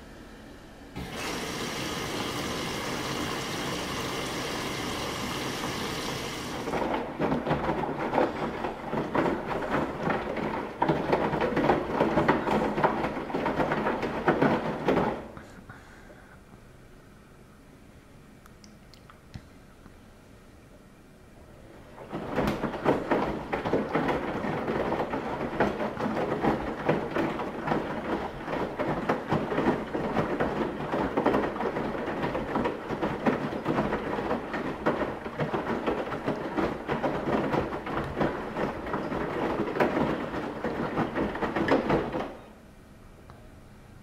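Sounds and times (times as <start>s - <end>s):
washing machine running: 0.0s - 15.4s, 21.4s - 42.8s.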